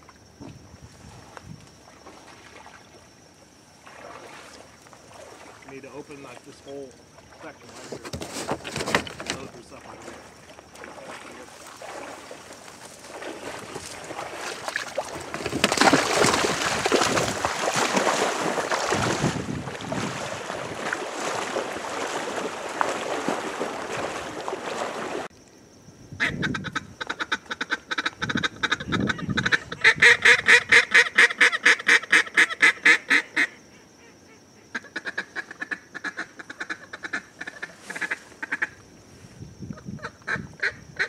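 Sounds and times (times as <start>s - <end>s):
rough rustling: 7.4s - 25.3s.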